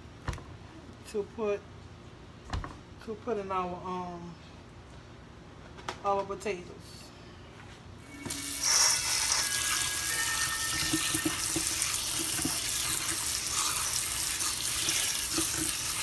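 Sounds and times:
tap water splashing into colander: 10.3 - 16.0.

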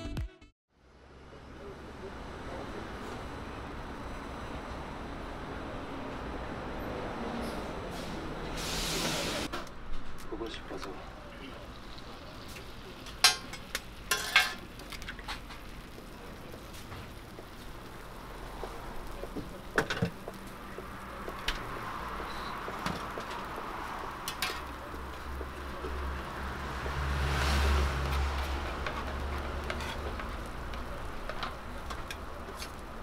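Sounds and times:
food sizzling on griddle: 8.6 - 9.5, 11.1 - 33.0.

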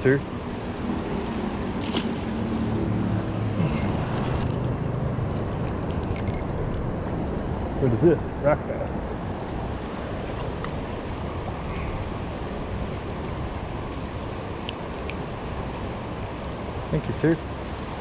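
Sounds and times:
river water rushing over rocks: 5.2 - 18.0.

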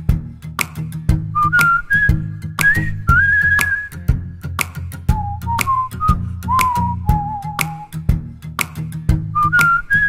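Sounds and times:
light ticking beat: 0.0 - 10.0
plucked acoustic guitar: 0.0 - 10.0
whistled melody: 1.3 - 4.3, 5.1 - 8.1, 9.3 - 10.0.

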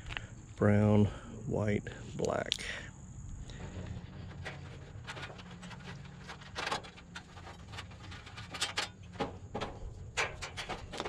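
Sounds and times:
wires rustling: 3.2 - 11.0.

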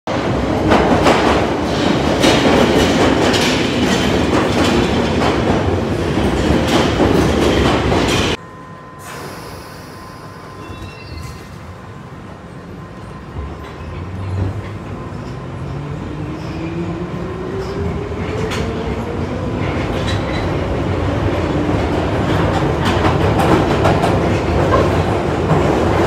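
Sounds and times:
train wheels rumbling on rail: 0.1 - 8.4, 10.6 - 26.0
hum inside train carriage: 7.6 - 16.1.

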